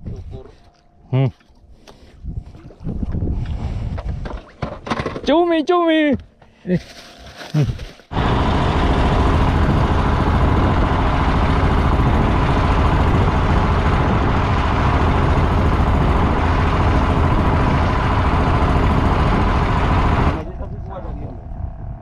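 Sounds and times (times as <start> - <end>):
boat engine rumble: 7.5 - 22.0
faint constant hum: 8.9 - 22.0.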